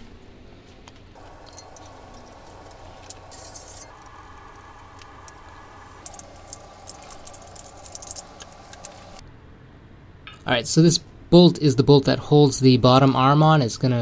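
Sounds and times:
metal parts clicking and clinking: 1.2 - 9.2
steady hum: 1.2 - 9.2.

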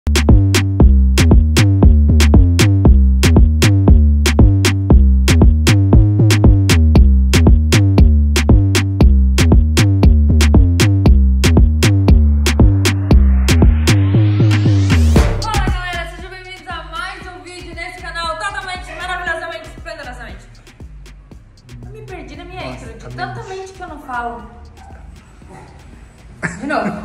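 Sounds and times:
electronic dance music: 0.1 - 27.0
rising noise sweep: 11.4 - 15.5.

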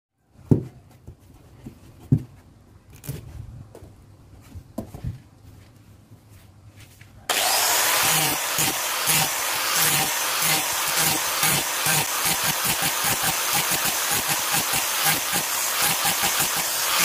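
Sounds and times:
angle grinder running: 7.3 - 17.0.

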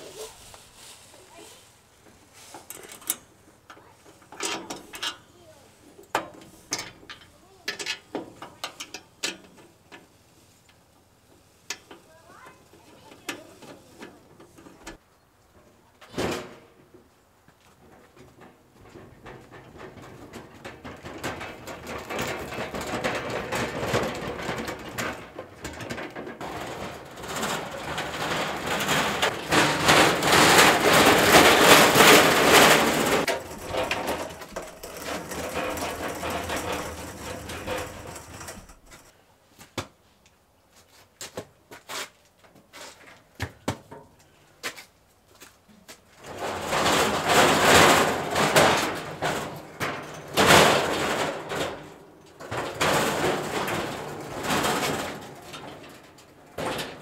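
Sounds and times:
hardware clicks and knocks: 17.8 - 39.1
metal grill rattling clatter: 18.3 - 39.1, 46.2 - 57.0.

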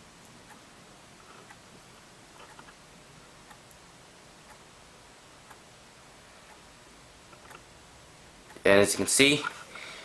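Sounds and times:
alarm clock ticking: 0.4 - 0.7, 4.4 - 4.8.

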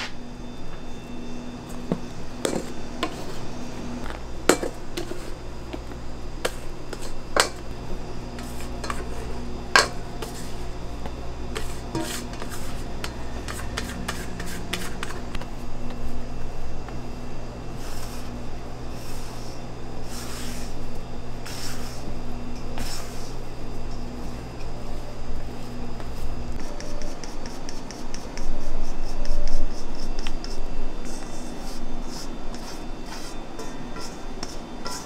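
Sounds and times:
steady low hum: 0.0 - 35.0
spatula scraping metal bowl: 8.4 - 10.6, 11.5 - 15.4, 30.4 - 35.0.

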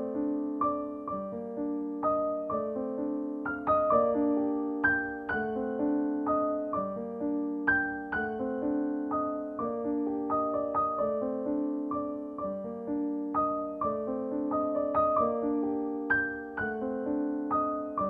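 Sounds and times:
solo piano music: 0.0 - 18.0.

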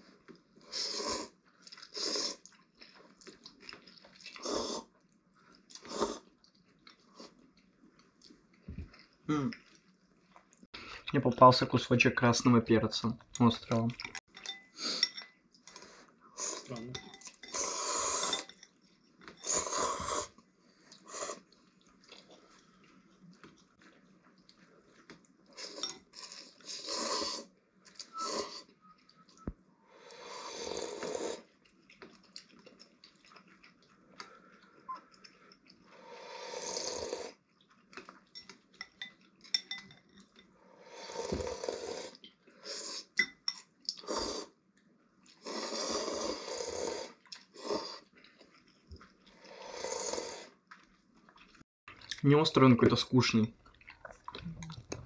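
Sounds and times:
noodles being slurped: 0.6 - 5.0, 14.8 - 18.6, 19.3 - 22.8, 24.5 - 28.8, 30.0 - 38.1, 45.3 - 50.7, 53.2 - 55.0.

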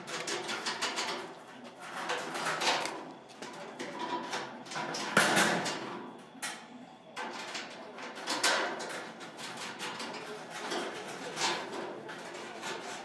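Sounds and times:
knocks and clatter on sheet metal: 0.0 - 6.0, 7.2 - 13.0.

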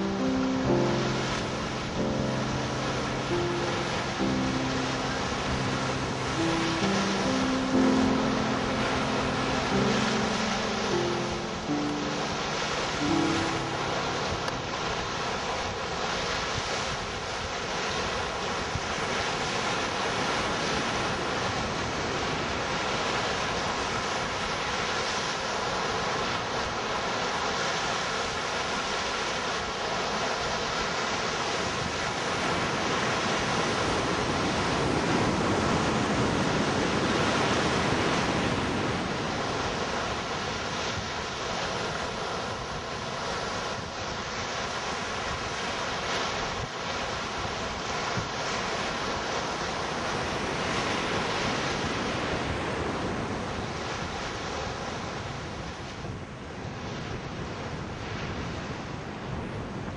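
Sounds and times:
waves breaking on beach: 0.0 - 59.9
wind buffeting microphone: 31.4 - 59.9.

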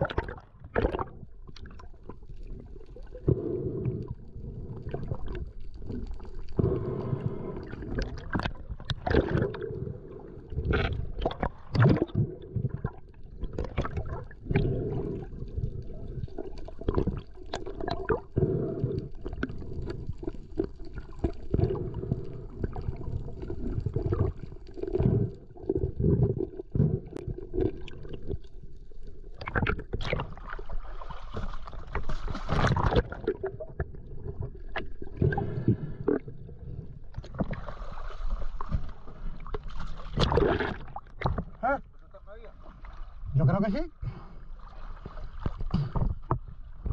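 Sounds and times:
water sloshing and gurgling: 0.0 - 46.9
knocks and splashes: 38.6 - 41.6.

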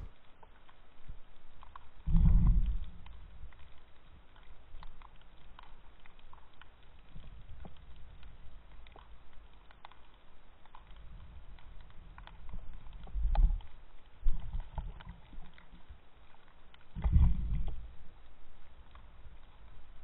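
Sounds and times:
faint crackling clicks: 0.0 - 20.0
underwater rumbling surges: 2.1 - 3.1, 17.0 - 18.1.

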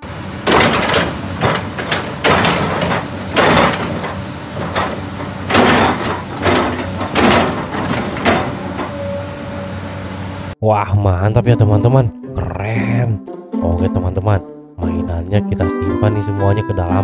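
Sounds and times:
excavator diesel engine running: 0.0 - 10.6
hydraulic surges: 0.0 - 10.6.

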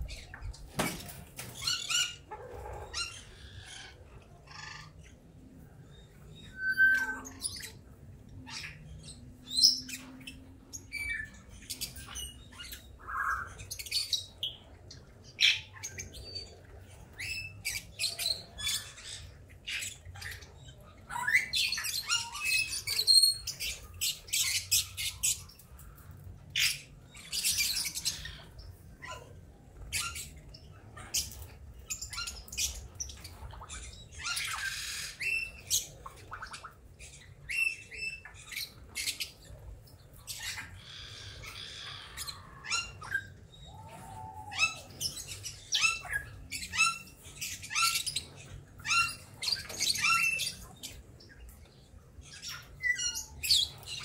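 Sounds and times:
parrots chirping and squawking: 0.0 - 54.0.

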